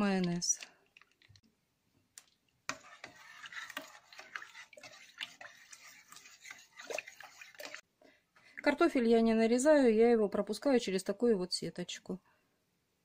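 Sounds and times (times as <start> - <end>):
liquid sloshing in a pot: 0.0 - 9.0
metal spoon scraping a pot: 2.7 - 7.8.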